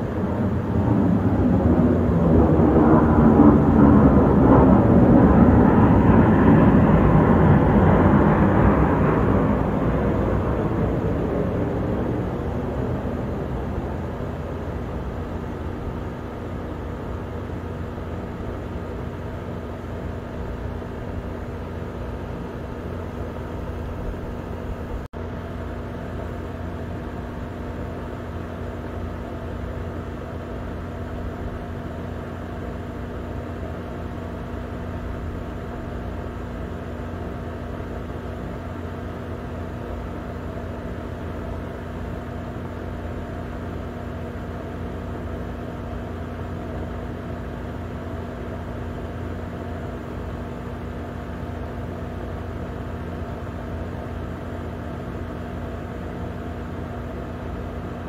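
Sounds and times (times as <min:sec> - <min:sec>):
jet airliner passing overhead: 0:00.0 - 0:28.2
low hum: 0:00.0 - 0:58.0.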